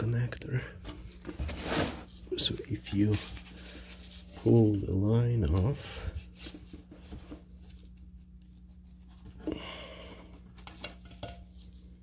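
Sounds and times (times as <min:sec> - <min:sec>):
steady low hum: 0:00.0 - 0:12.0
gloved hands rustling: 0:02.4 - 0:09.4.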